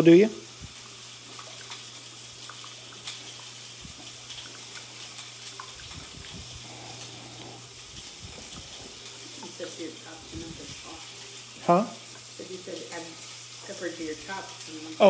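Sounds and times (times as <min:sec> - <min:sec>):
meat sizzling on grill: 0:00.0 - 0:15.0.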